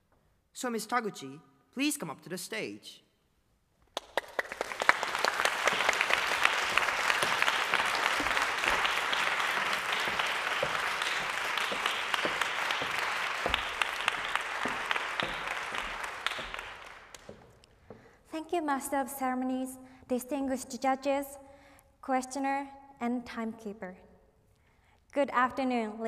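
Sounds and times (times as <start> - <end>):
audience applauding: 4.0 - 17.7.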